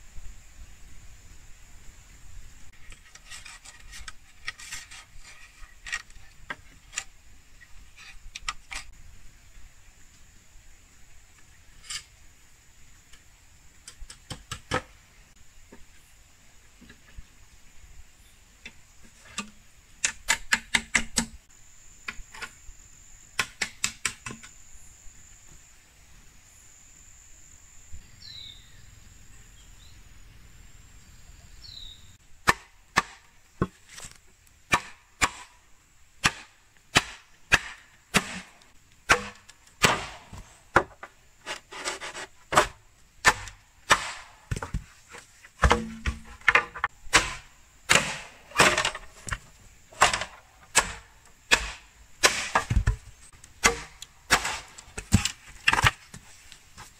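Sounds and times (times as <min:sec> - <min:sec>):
machete chopping bamboo: 0:19.3 - 0:21.4, 0:23.4 - 0:24.5, 0:32.4 - 0:35.5, 0:36.2 - 0:44.9, 0:45.6 - 0:49.1, 0:49.9 - 0:53.0, 0:53.6 - 0:56.2
high insect whine: 0:21.4 - 0:32.2
bird chirps: 0:27.9 - 0:32.2.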